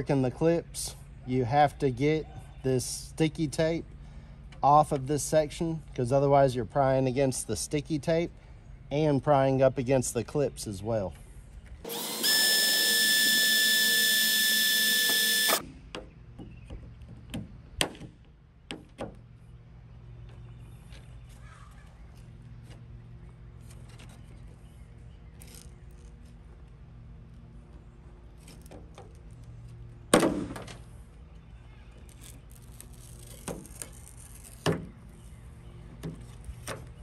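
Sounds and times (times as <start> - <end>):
power drill whining: 11.9 - 15.6.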